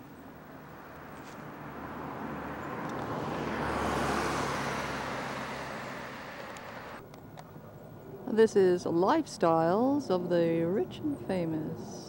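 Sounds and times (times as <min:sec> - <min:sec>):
car driving past: 0:00.8 - 0:07.0.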